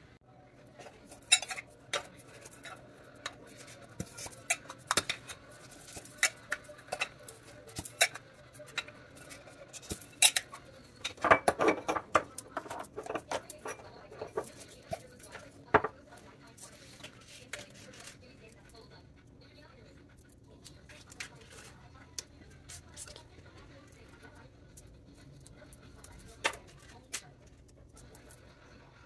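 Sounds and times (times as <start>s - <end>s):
tins and jars clicking and clattering: 7.8s - 14.7s.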